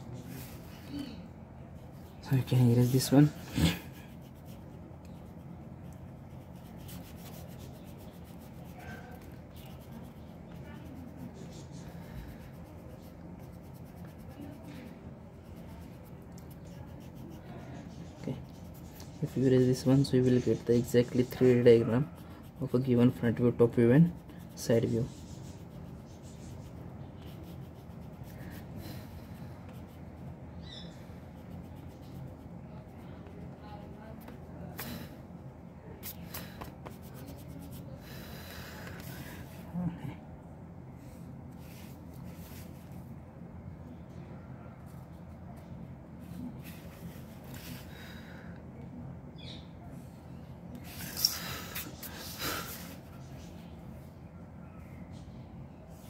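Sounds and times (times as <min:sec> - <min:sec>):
low steady hum: 0:00.0 - 0:56.0
eraser rubbing on paper: 0:02.3 - 0:35.1, 0:36.0 - 0:39.7.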